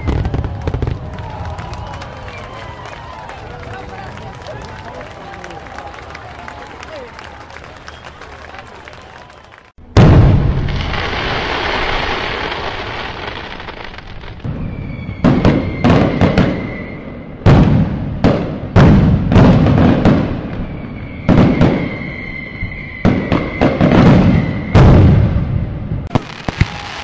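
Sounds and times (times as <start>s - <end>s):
fireworks bangs with rumble: 0.0s - 2.5s, 9.9s - 27.0s
high firework whistle: 14.4s - 17.5s, 20.0s - 27.0s.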